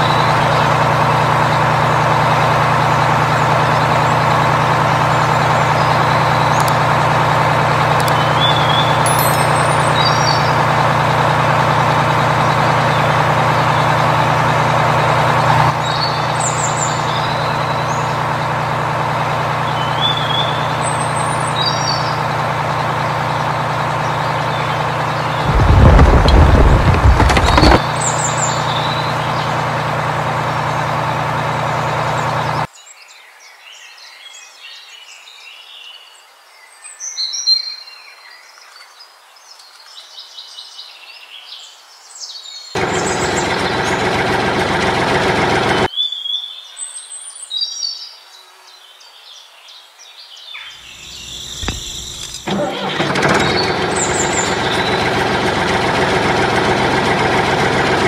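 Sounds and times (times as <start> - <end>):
vehicle engine running: 0.0 - 32.7, 42.8 - 45.9, 50.8 - 58.0
birds chirping: 0.0 - 32.9, 42.2 - 48.2, 50.4 - 58.0.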